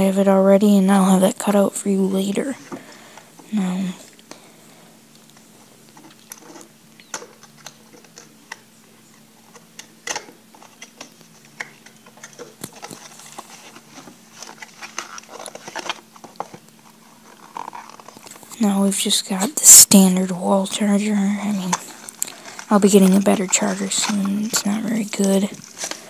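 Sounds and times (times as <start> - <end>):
faint low hum: 0.0 - 26.0
packaging rustling and clicking: 9.4 - 18.5, 21.7 - 26.0.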